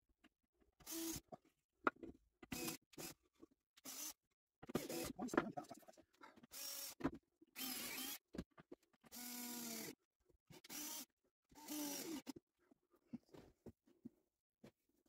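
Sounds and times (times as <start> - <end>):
cordless drill driving screws: 0.8 - 1.2, 7.6 - 8.2, 9.1 - 9.9, 10.6 - 12.4.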